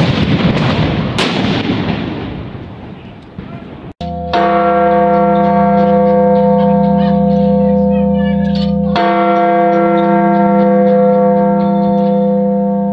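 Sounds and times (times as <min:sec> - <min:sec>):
large church bell ringing: 0:04.0 - 0:12.9.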